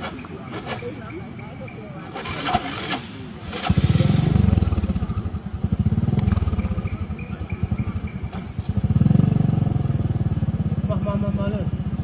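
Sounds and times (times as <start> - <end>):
small engine running: 3.6 - 12.0.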